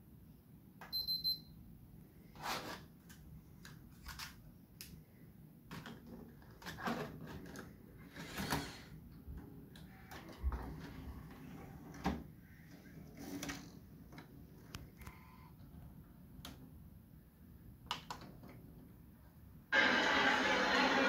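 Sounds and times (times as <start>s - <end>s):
music from playback: 19.8s - 21.0s.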